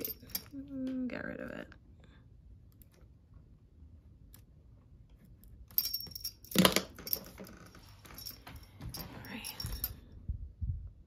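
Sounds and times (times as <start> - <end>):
light clicks and clinks: 0.0 - 0.7, 5.7 - 10.2
stationery being handled: 5.1 - 10.0.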